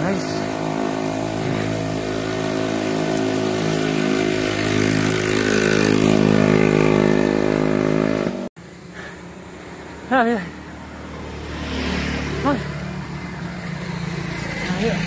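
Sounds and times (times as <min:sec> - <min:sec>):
road and wind hiss: 0:00.0 - 0:15.0.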